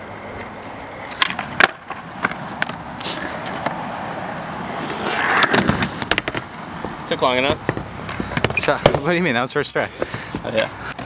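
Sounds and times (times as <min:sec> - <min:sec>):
skateboard wheels rolling on concrete: 0:00.0 - 0:11.0
skateboard clacks: 0:00.4 - 0:03.8, 0:04.8 - 0:09.1.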